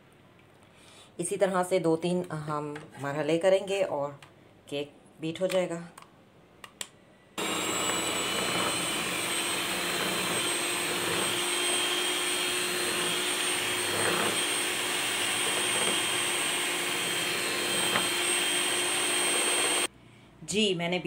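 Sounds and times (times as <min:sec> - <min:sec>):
electric hand mixer whining: 0:07.4 - 0:19.9.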